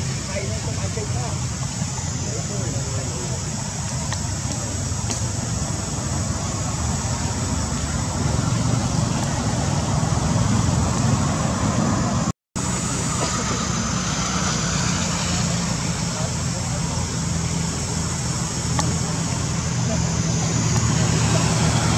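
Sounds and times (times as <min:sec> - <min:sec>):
hiss: 0:12.6 - 0:21.9.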